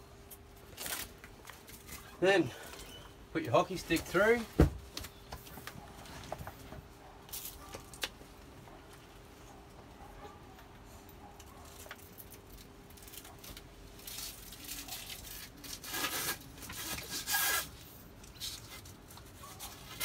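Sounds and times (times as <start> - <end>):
canvas rustling and scraping: 13.0 - 20.0.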